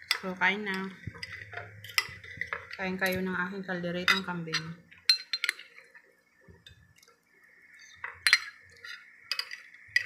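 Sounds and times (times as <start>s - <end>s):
metal spoon clinking on ceramic plate: 4.1s - 5.6s, 8.2s - 10.0s.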